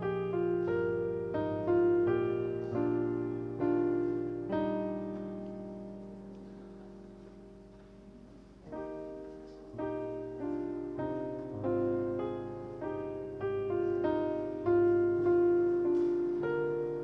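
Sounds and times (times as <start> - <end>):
piano chords: 0.0 - 17.0.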